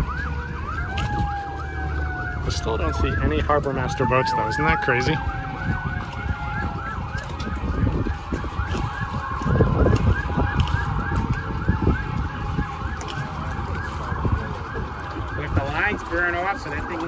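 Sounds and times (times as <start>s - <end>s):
siren yelping: 0.0s - 17.0s
steady falling siren tone: 0.0s - 17.0s
wind buffeting microphone: 0.0s - 17.0s.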